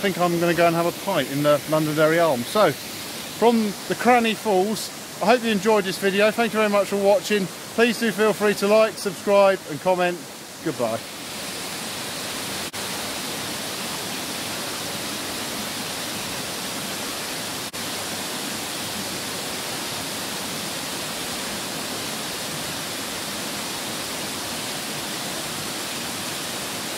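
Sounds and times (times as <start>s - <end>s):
waterfall rushing: 0.0s - 26.9s.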